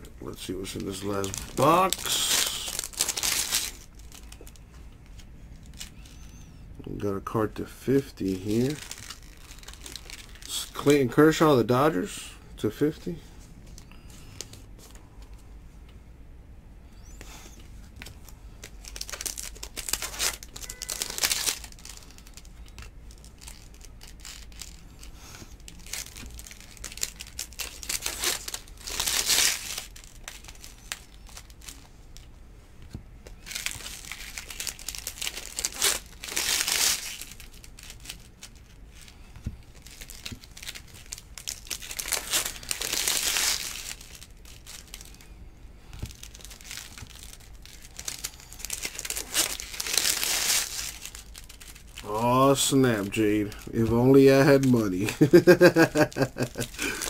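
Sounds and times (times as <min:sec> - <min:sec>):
plastic wrappers crinkling: 0:00.0 - 0:06.4, 0:07.6 - 0:12.2, 0:17.0 - 0:57.0
cards being shuffled: 0:45.9 - 0:57.0.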